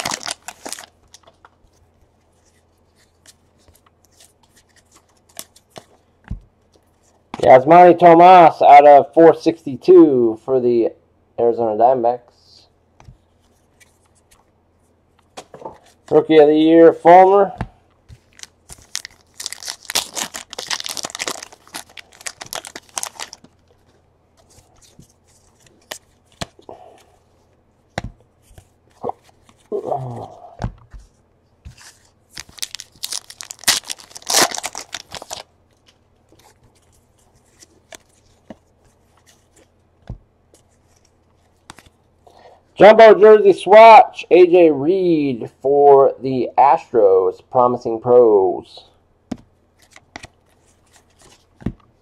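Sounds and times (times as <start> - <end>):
foil wrappers tearing and crinkling: 0.0 - 1.3, 18.2 - 23.5, 32.3 - 35.5.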